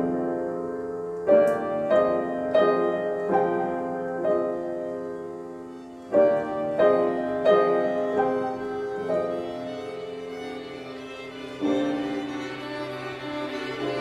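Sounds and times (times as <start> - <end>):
piano chords ringing: 0.0 - 14.0.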